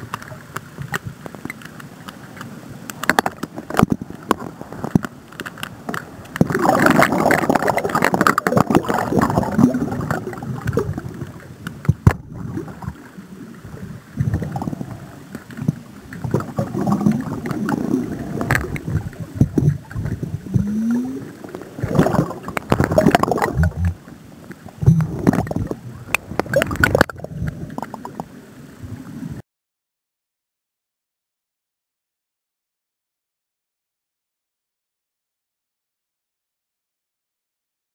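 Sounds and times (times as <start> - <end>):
muffled churning water underwater: 0.0 - 29.4.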